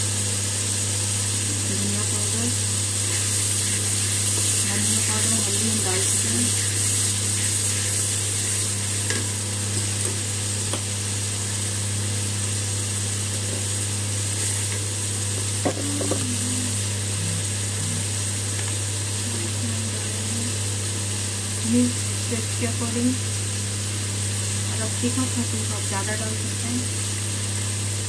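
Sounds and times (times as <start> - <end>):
sauce sizzling in hot oil: 0.0 - 28.0
steady low hum: 0.0 - 28.0
spatula stirring: 3.0 - 10.8.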